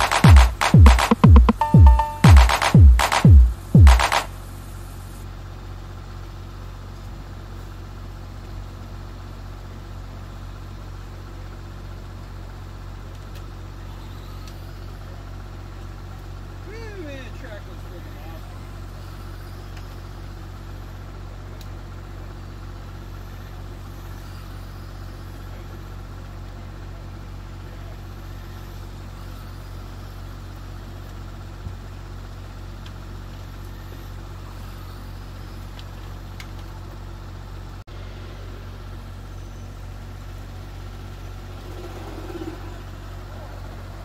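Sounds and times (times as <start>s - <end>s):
small engine idling: 2.7s - 44.0s.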